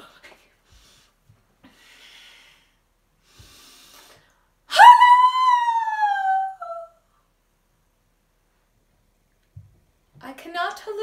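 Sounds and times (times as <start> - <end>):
faint breaths: 0.3 - 4.6
woman's long high call: 4.7 - 7.0.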